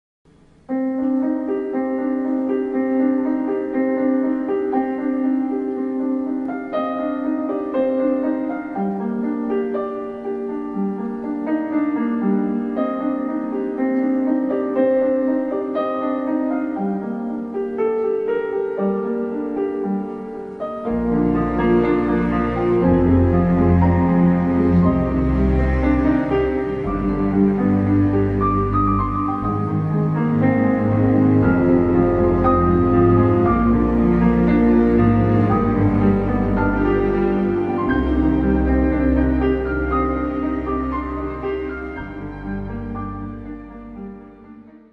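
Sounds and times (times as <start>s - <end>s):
piano melody: 0.3s - 44.9s
deep bass music: 21.0s - 44.0s.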